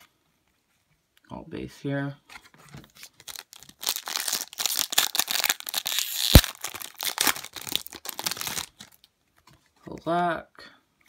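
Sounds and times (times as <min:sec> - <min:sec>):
foil wrapper tearing and crinkling: 0:03.1 - 0:09.0.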